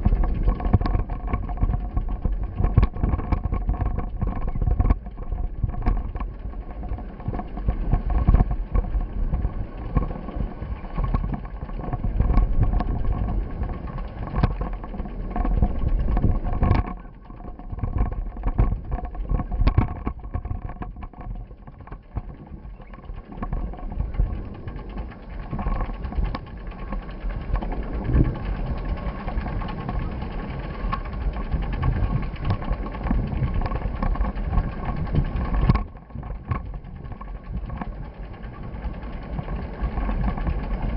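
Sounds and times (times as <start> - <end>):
faint steady hum: 0.0 - 40.9
wind and road noise: 0.0 - 40.9.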